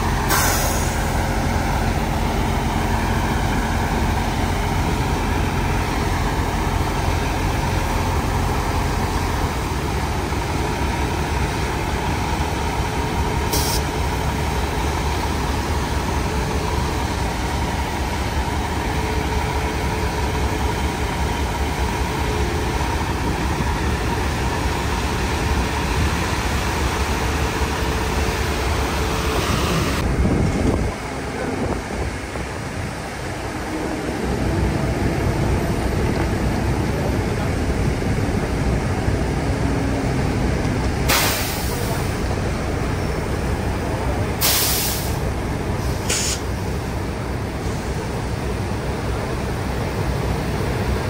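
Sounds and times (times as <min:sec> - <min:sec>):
diesel truck engine running: 0:00.0 - 0:51.0.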